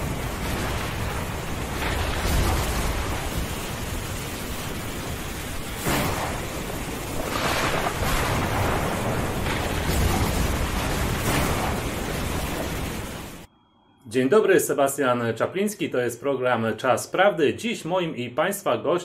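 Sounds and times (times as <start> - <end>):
heavy rain and wind: 0.0 - 13.5
thunder rumbles: 0.0 - 13.5.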